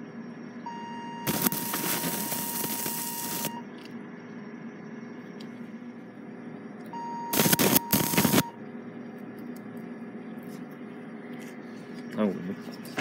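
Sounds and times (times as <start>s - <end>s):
electric scalpel activation tone: 1.2s - 3.6s, 7.3s - 8.6s
electrode crackling sparks: 1.3s - 3.5s, 7.3s - 8.5s.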